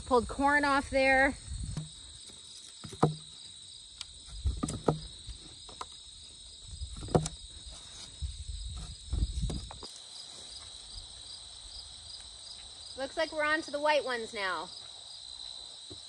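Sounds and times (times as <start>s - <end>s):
crickets chirring: 0.0s - 16.0s
potatoes thumping and scraping in soil: 0.1s - 11.2s.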